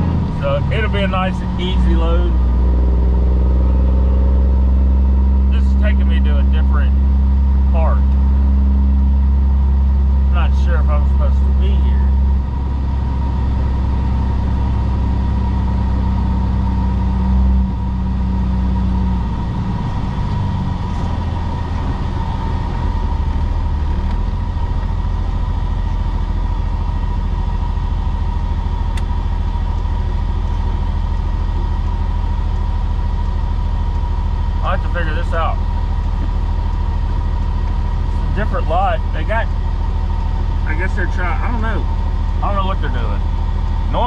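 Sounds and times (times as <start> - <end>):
diesel truck engine from inside cab: 0.0 - 44.0.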